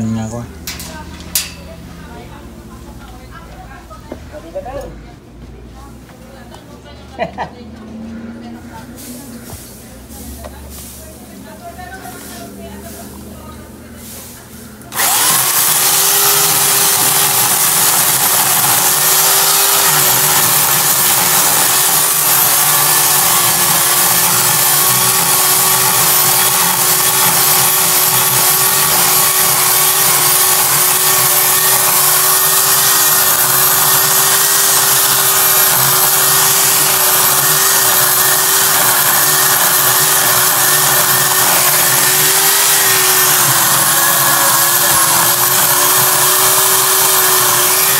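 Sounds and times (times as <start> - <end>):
electric chainsaw cutting wood: 14.9 - 47.9.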